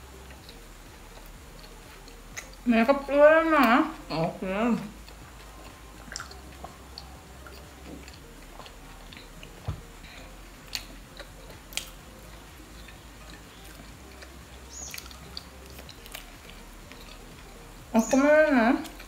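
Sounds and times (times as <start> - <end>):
people chewing bread: 0.0 - 19.0
small mouth clicks and smacks: 0.3 - 2.6, 5.0 - 9.8, 10.6 - 12.0, 12.8 - 17.4.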